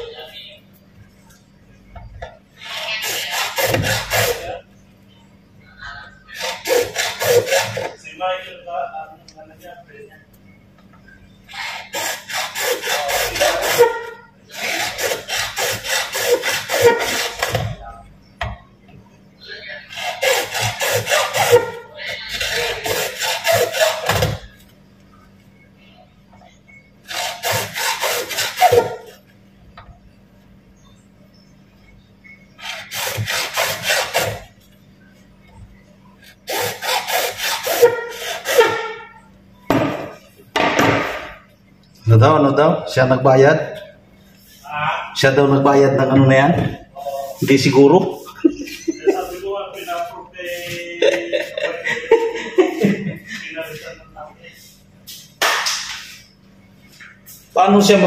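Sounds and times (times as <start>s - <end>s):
hand saw cutting plastic pipe: 2.6s - 4.6s, 6.4s - 8.0s, 11.5s - 17.8s, 19.9s - 24.5s, 27.1s - 29.1s, 32.6s - 34.5s, 36.4s - 39.0s.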